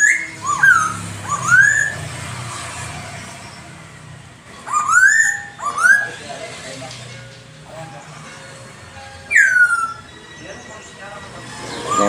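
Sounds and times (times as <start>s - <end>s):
bird whistling rising notes: 0.0s - 3.9s, 4.6s - 6.2s, 9.3s - 12.0s.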